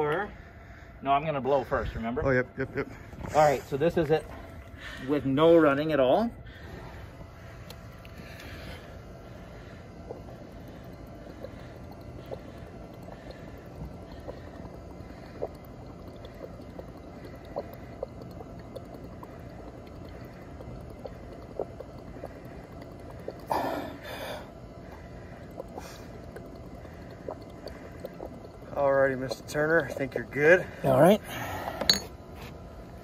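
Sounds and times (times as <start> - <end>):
rush of air and bubbling: 6.3 - 33.0
breath bubbling through a straw: 6.4 - 33.0.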